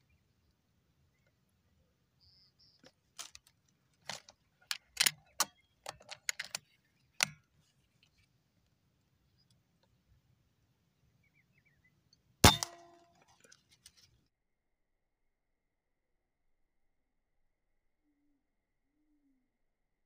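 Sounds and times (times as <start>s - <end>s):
air rifle handling clicks and rattles: 2.8s - 8.3s.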